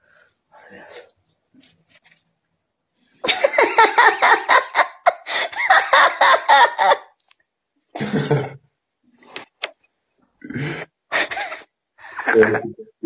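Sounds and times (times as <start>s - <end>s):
woman laughing: 3.2s - 7.1s, 11.1s - 12.6s.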